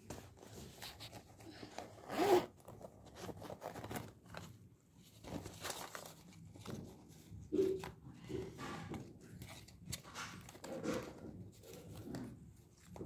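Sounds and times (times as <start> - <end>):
paper rustling: 0.0 - 13.0
zipper pulled open: 1.7 - 3.9.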